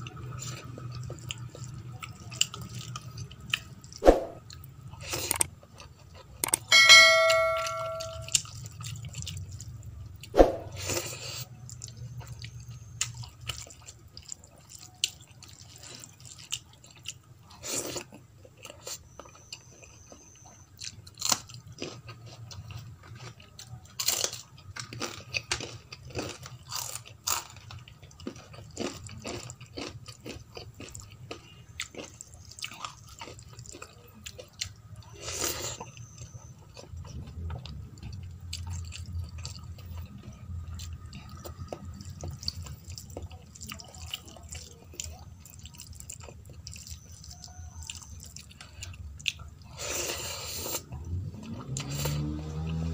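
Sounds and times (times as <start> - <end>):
chewing: 0.0 - 6.7, 8.2 - 52.9
low hum: 6.5 - 8.4.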